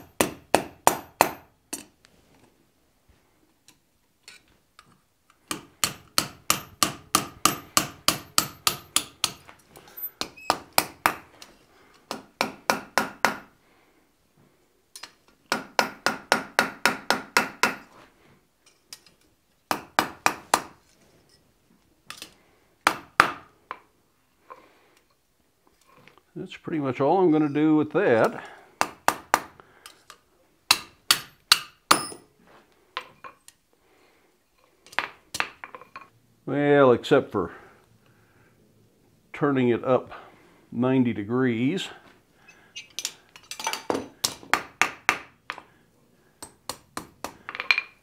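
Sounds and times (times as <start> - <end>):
hammer striking steel on anvil: 5.5 - 9.4, 30.7 - 32.2.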